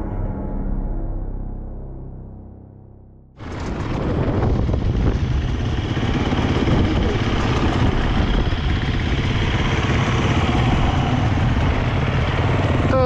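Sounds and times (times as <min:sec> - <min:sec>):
dirt bike engines idling: 0:03.4 - 0:13.0.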